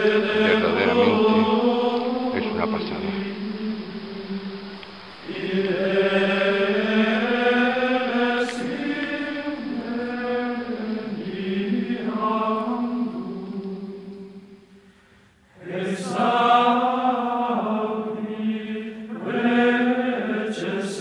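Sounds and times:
slow vocal chanting: 0.0s - 21.0s.

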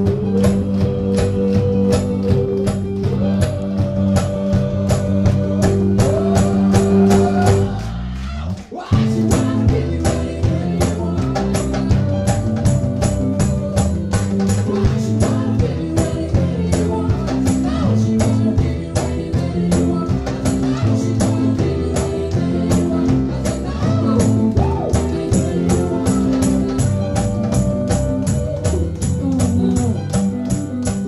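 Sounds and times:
hand percussion hits: 0.0s - 7.8s
guitar: 0.0s - 31.0s
keyboard: 0.0s - 31.0s
person singing: 0.0s - 31.0s.

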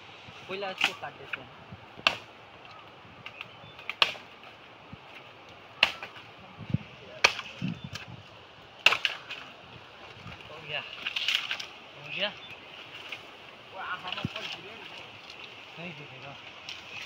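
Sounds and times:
machete chopping bamboo: 2.0s - 2.3s, 3.8s - 4.3s, 5.8s - 6.2s, 7.2s - 8.1s, 8.8s - 9.4s.

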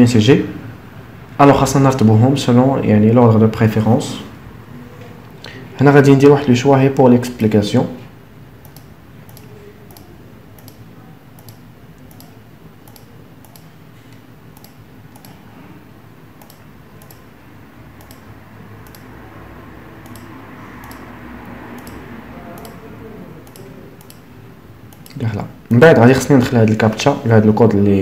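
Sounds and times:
faint low room hum: 0.0s - 28.0s
computer mouse clicking: 8.6s - 15.4s, 16.4s - 17.4s, 18.0s - 19.3s, 20.0s - 24.3s, 24.9s - 25.2s.

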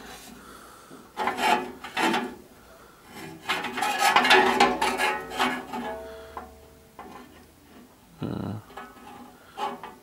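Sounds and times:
metal bar scraping and clattering: 1.2s - 2.4s, 3.1s - 7.9s, 8.7s - 10.0s.

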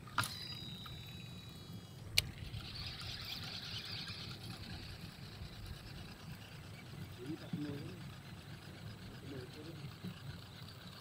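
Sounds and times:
reel spool high whine: 0.0s - 11.0s
fishing reel click: 0.1s - 5.8s
reel winding hiss: 0.1s - 11.0s.

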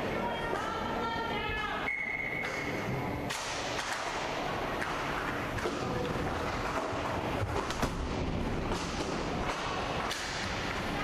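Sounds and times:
echoing rink noise: 0.0s - 11.0s
hockey sticks and puck clacking: 2.4s - 11.0s.

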